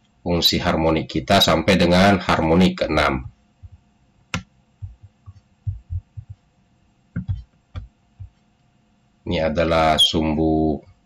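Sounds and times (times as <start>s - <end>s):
computer mouse clicks: 7.2s - 8.4s
soft knocks of mouse on desk: 7.2s - 8.4s.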